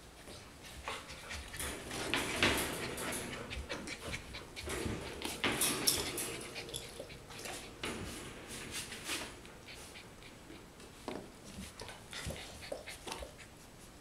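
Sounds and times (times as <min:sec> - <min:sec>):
puppies rustling on blanket: 0:00.0 - 0:14.0
puppy panting: 0:00.3 - 0:07.9, 0:08.9 - 0:10.7, 0:11.6 - 0:13.9.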